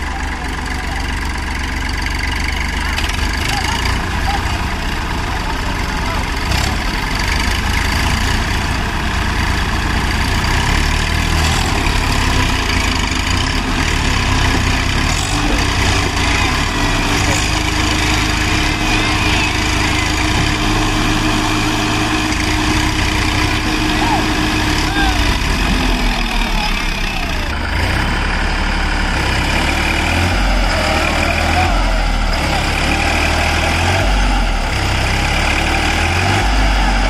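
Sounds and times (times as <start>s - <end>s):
tractor diesel engines rumbling: 0.0s - 37.0s
faint men's voices: 3.3s - 7.0s, 14.9s - 22.6s, 23.4s - 27.7s, 30.6s - 32.9s.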